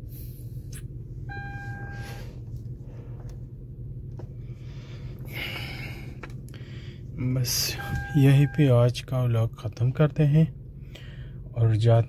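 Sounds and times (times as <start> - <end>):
car engine idling: 0.0 - 12.0
short beep: 1.3 - 2.2, 7.7 - 8.7.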